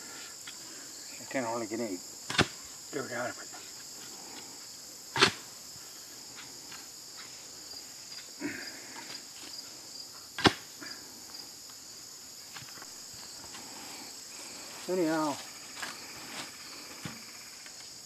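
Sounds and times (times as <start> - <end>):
high insect chorus: 0.0 - 18.0
post-hole digger striking hard ground: 5.2 - 5.4.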